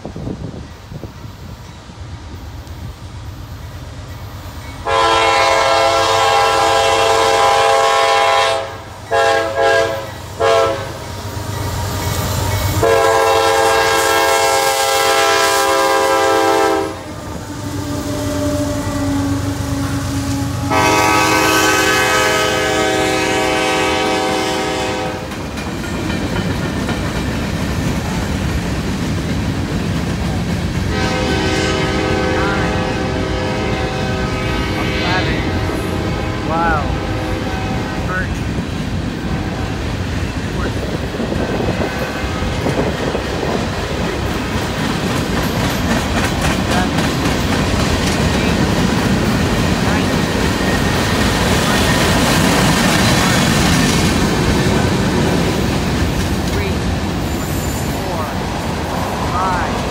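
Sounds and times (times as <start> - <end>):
locomotive air horn blasts: 4.8 - 11.0, 12.8 - 25.3, 30.9 - 38.4
freight cars rumbling and clacking: 25.1 - 31.1, 37.5 - 59.9.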